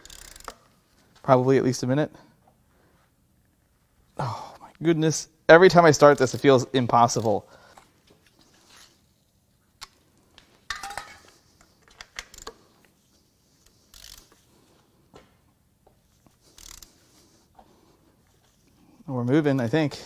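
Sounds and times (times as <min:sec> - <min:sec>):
metal tools clinking on bolt: 0:10.7 - 0:12.5.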